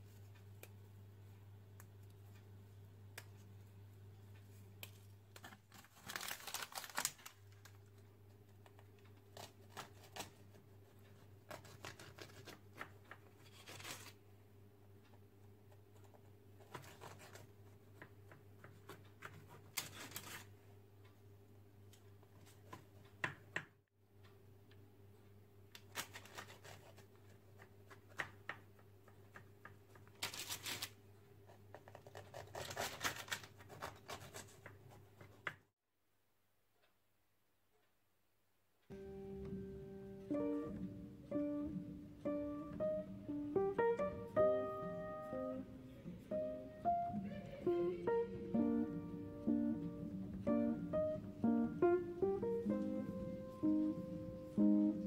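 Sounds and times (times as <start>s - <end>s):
parchment paper crinkling: 4.8s - 14.2s, 16.0s - 20.5s, 25.8s - 28.3s, 29.1s - 35.4s.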